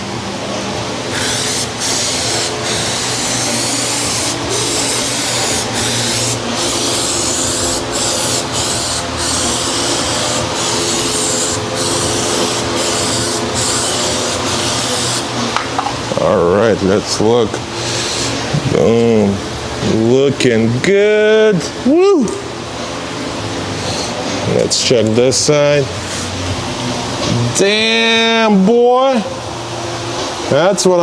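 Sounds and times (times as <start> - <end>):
steady low hum: 0.0 - 31.0
aerosol spray can hissing: 1.1 - 15.3.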